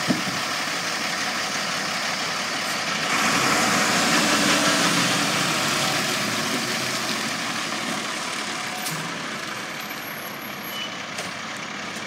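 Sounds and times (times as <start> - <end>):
garbage truck diesel engine: 0.0 - 12.0.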